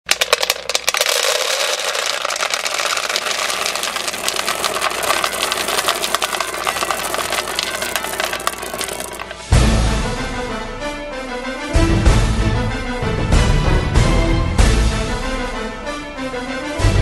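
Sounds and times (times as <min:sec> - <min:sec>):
dry kibble rattling into bowl: 0:00.0 - 0:09.4.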